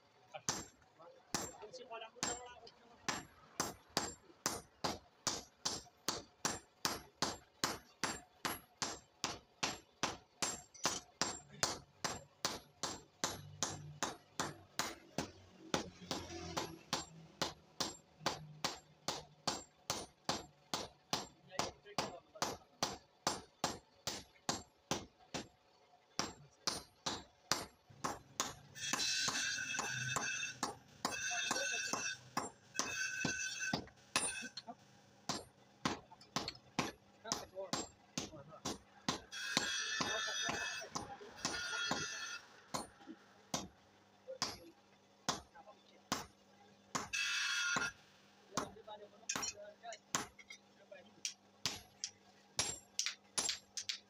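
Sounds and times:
sledgehammer striking hot steel: 0:00.4 - 0:25.5, 0:26.2 - 0:43.8, 0:44.4 - 0:44.7, 0:45.3 - 0:50.6, 0:51.3 - 0:54.0
high-pitched ringing: 0:28.8 - 0:34.7, 0:39.4 - 0:42.6.

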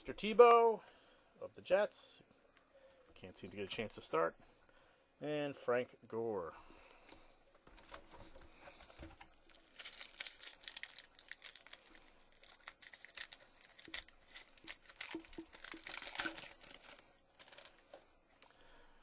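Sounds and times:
wrapper tearing and crinkling: 0:07.7 - 0:17.9.

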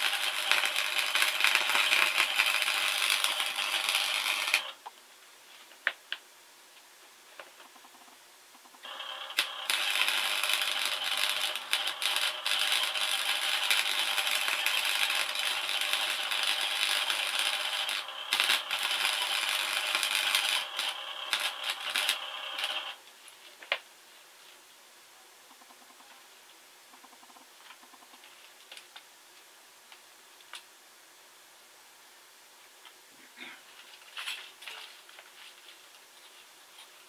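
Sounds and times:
welding arc crackling sizzle: 0:00.0 - 0:04.9, 0:07.6 - 0:23.1.

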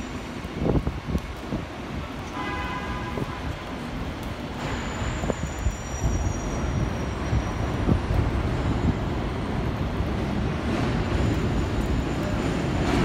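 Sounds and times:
subway train rumbling: 0:00.0 - 0:13.0
high wheel squeal: 0:04.6 - 0:09.2, 0:10.8 - 0:12.8.

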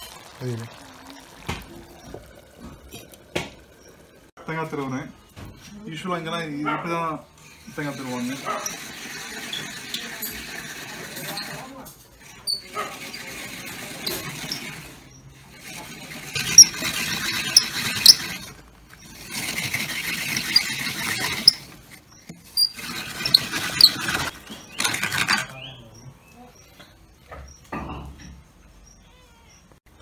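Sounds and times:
coconut scraper rasping: 0:07.4 - 0:25.5
high squeaks: 0:07.4 - 0:25.7.

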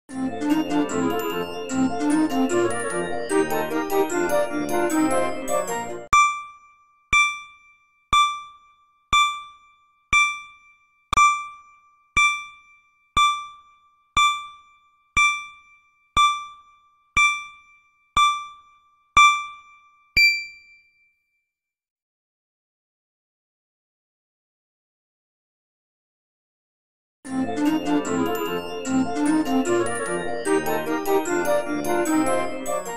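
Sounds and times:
electronic ding tones: 0:06.1 - 0:21.0.

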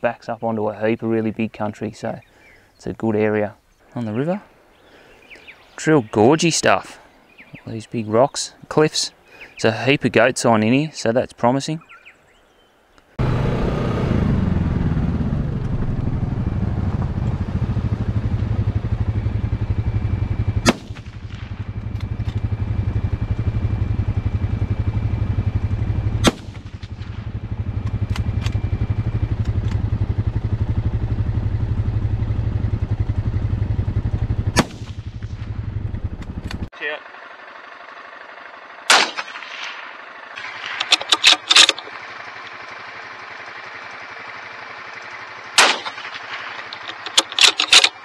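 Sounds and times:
quad bike engine idling: 0:13.2 - 0:38.9, 0:39.5 - 0:48.0
rifle shots: 0:20.6 - 0:21.9, 0:26.2 - 0:28.6, 0:34.5 - 0:35.5, 0:38.9 - 0:41.9, 0:45.6 - 0:48.0.

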